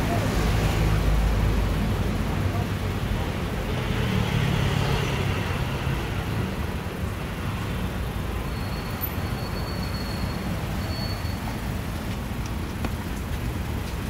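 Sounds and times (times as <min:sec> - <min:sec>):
faint high whistle: 0:08.5 - 0:11.4.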